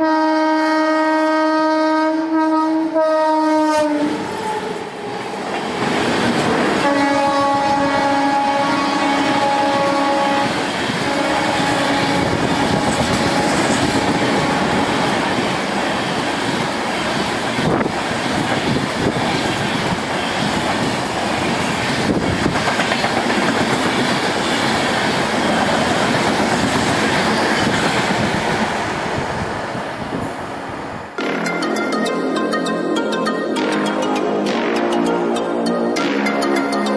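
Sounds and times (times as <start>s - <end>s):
train horn: 0.0s - 4.8s, 6.8s - 15.3s
train coaches rushing past: 3.9s - 31.7s
wheels clacking over rail joints: 9.4s - 28.8s.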